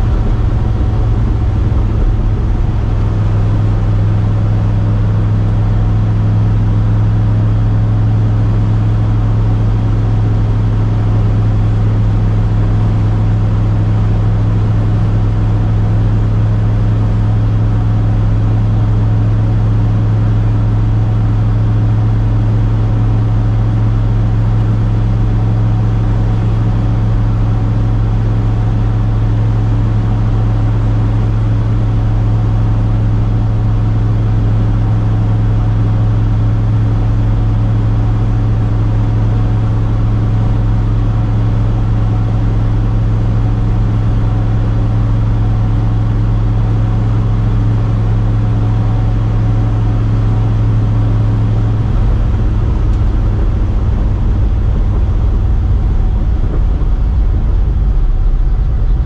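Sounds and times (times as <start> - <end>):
tyre and road noise: 0.0 - 4.5, 51.2 - 59.0
pickup engine and exhaust drone: 0.0 - 59.0.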